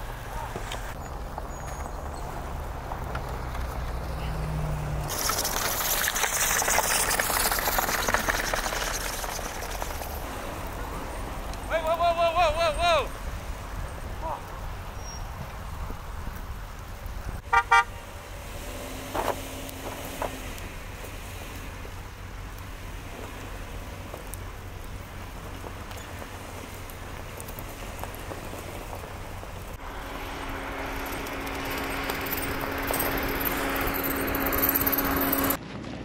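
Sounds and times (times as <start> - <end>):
low rumble of vehicles: 0.0 - 36.0
car horn toots: 17.4 - 18.0.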